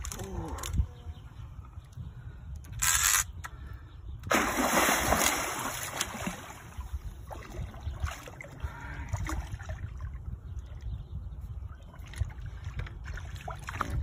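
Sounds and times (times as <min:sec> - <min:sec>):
fish splashing in water: 0:04.3 - 0:06.8.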